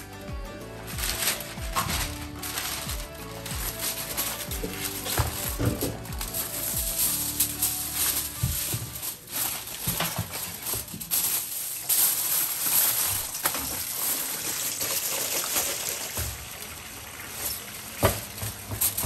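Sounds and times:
food sizzling in hot oil: 10.9 - 19.0.

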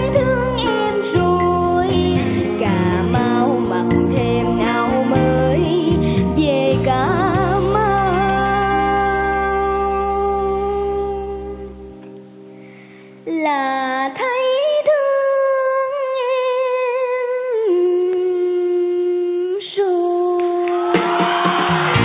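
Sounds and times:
woman singing wordless notes: 0.0 - 11.8, 13.3 - 20.8
instrumental accompaniment: 0.0 - 13.3.

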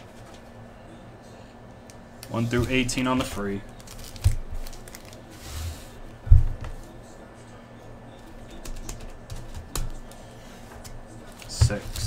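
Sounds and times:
foil packs rustling and tapping: 3.8 - 5.2, 10.8 - 12.0.

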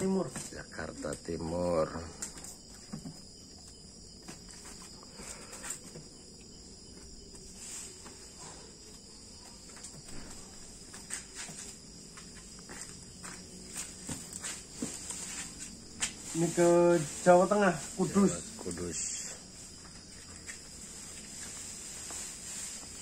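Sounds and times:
crickets chirping: 0.0 - 23.0
parcels knocking and rustling: 2.2 - 5.0, 13.4 - 16.2.

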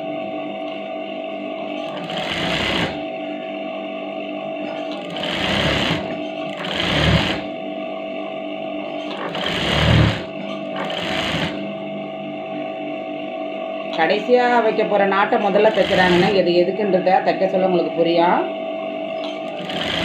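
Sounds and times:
sewing machine stitching: 1.8 - 3.0, 4.8 - 7.6, 9.0 - 11.6, 15.4 - 16.4, 19.2 - 20.0.

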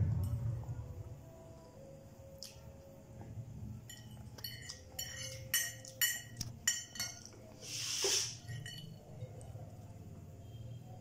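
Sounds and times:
fork clinking on ceramic plate: 3.9 - 7.4, 8.4 - 9.1
short loud hiss: 7.6 - 8.4.

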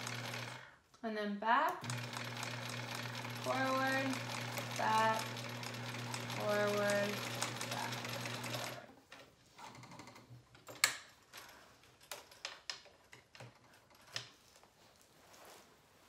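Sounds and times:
sewing machine stitching: 0.0 - 0.7, 1.8 - 8.9.

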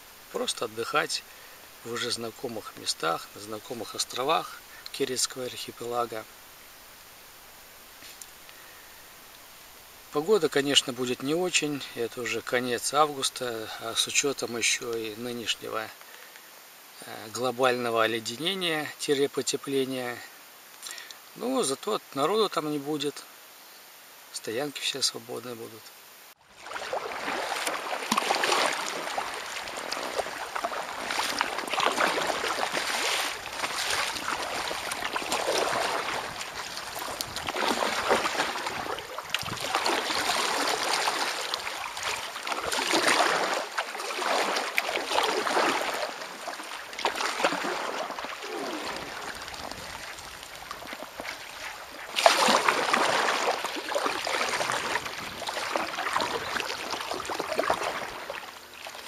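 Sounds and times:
kayak paddle splashing in water: 26.5 - 59.0.

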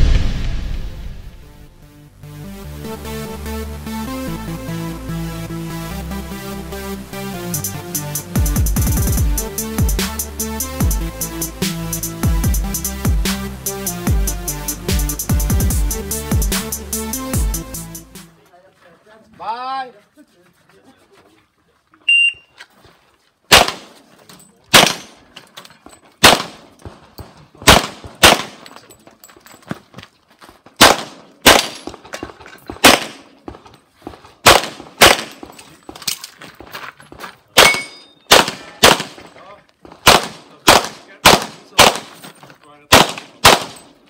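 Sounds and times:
handgun shots: 23.5 - 24.0, 24.7 - 25.2, 26.2 - 26.6, 27.6 - 28.7, 30.8 - 33.3, 34.4 - 35.5, 37.6 - 39.3, 40.0 - 42.2, 42.9 - 43.9.

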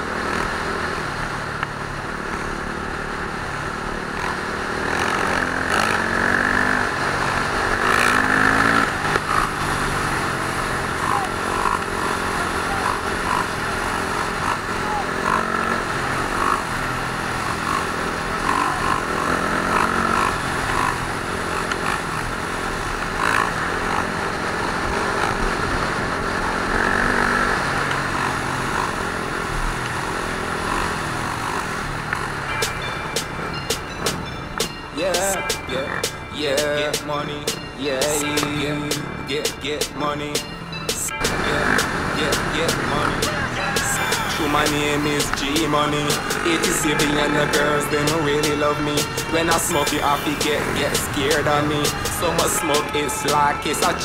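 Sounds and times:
motorcycle engines revving: 0.0 - 54.0
people's voices: 7.7 - 16.9, 17.6 - 21.0, 32.2 - 54.0.

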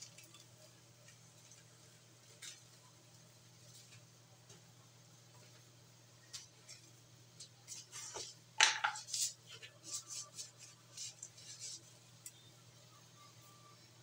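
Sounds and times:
faint low hum: 0.0 - 14.0.

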